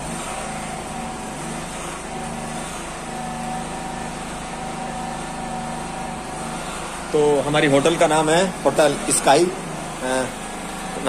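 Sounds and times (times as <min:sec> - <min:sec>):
steady engine drone: 0:00.0 - 0:11.0.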